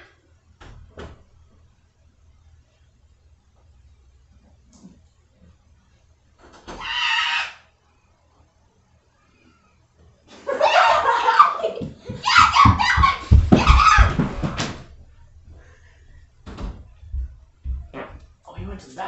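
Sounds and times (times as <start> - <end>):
heavy thuds: 11.8 - 19.0
boy yelling: 12.1 - 14.2.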